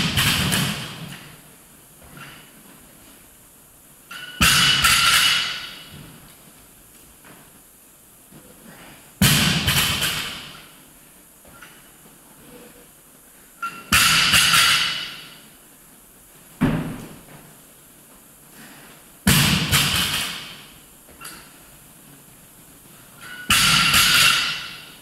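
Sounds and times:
barbell dropped with heavy thud: 23.2s - 24.8s.

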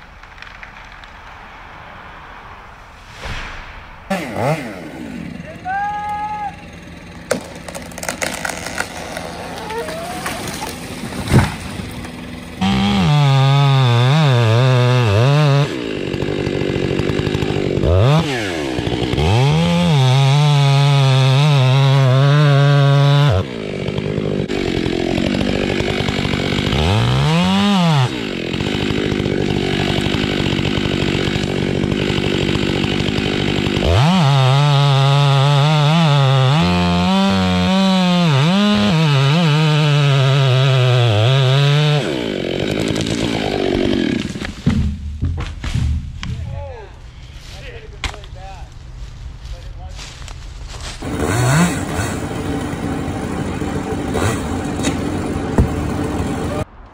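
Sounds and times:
chainsaw revving: 4.1s - 44.6s, 51.0s - 56.7s
tree falling thump: 7.3s - 12.2s, 44.1s - 46.5s, 54.8s - 56.0s.

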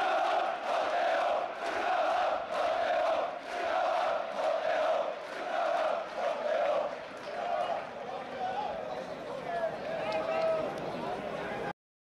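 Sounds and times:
crowd chanting: 0.0s - 7.9s.

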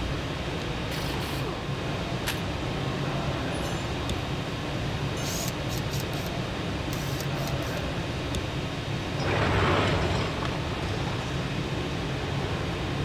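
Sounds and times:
workshop room rumble: 0.0s - 13.0s
short crisp hiss bursts: 0.9s - 1.5s, 5.2s - 6.3s, 6.9s - 7.8s.

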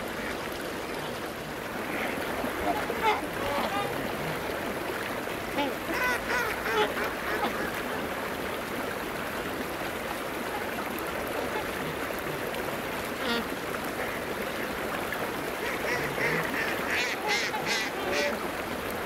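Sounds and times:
running water rushing: 0.0s - 19.0s
duck call: 13.2s - 13.5s, 15.6s - 18.4s.

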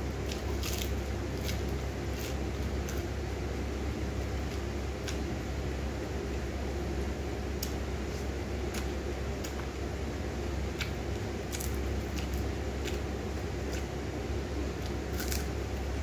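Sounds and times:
steady low hum: 0.0s - 16.0s
food being chewed: 0.2s - 3.1s, 4.3s - 5.3s, 10.7s - 14.0s, 14.7s - 15.9s.

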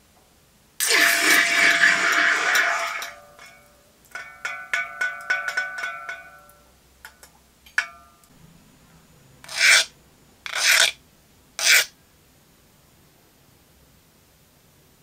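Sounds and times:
metal clinking and ringing: 3.0s - 6.7s, 7.8s - 8.3s
file rasping on steel: 9.5s - 9.9s, 10.5s - 11.0s, 11.6s - 11.9s.

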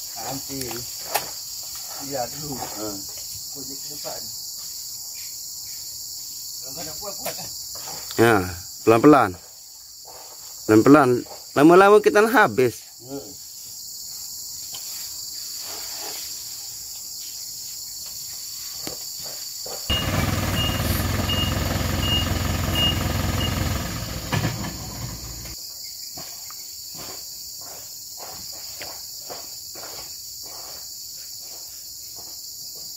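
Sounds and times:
insects chirping: 0.0s - 32.9s
short high beeps: 19.9s - 23.6s
lorry engine: 19.9s - 25.6s.

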